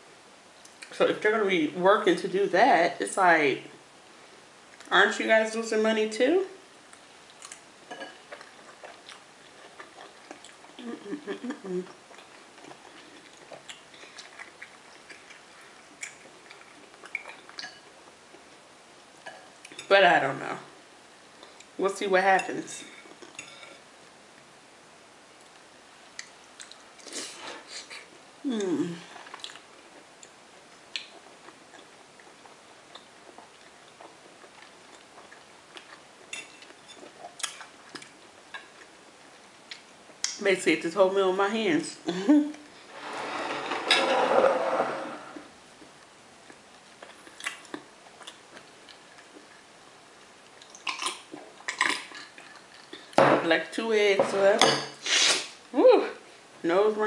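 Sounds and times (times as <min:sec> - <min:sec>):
soft chewing: 0:06.8 - 0:19.9, 0:21.3 - 0:21.8, 0:22.8 - 0:24.5, 0:25.4 - 0:40.4, 0:45.4 - 0:53.2
chewing close to microphone: 0:08.3 - 0:17.6
utensils touching dishes: 0:42.9 - 0:45.4.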